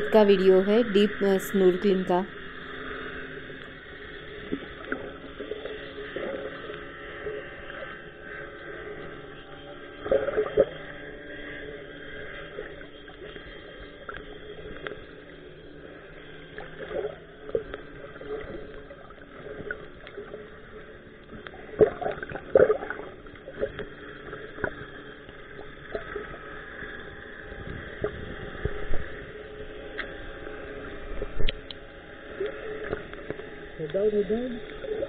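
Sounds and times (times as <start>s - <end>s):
muffled underwater hum: 0.0s - 35.0s
bubbly gurgles: 21.6s - 23.8s.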